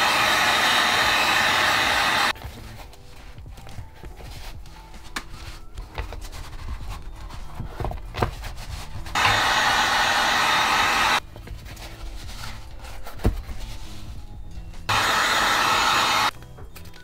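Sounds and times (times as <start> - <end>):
heat gun hissing: 0.0 - 2.3, 9.2 - 11.2, 14.9 - 16.3
hands rubbing and tapping foam: 2.3 - 9.2.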